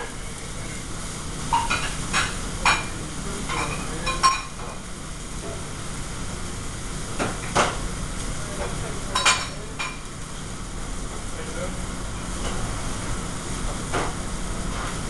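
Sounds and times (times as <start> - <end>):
exhaust hood running: 0.0 - 15.0
food frying: 0.0 - 15.0
metal pans and utensils clattering: 1.5 - 4.6.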